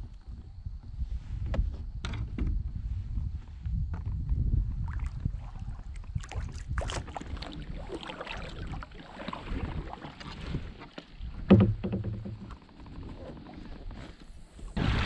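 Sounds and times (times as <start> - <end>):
water splashing off paddle: 4.9 - 15.0
paddle knocking against kayak: 6.2 - 14.7
paddle thump on kayak hull: 10.8 - 12.6.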